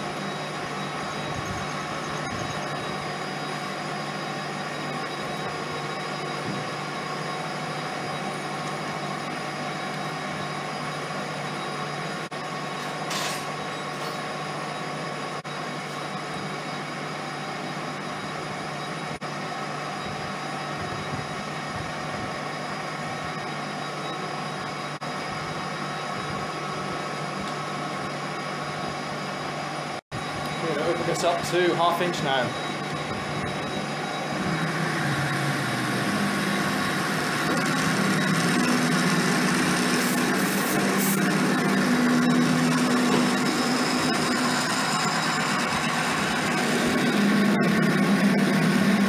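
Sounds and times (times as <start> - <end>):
lathe motor humming: 30.2 - 49.0.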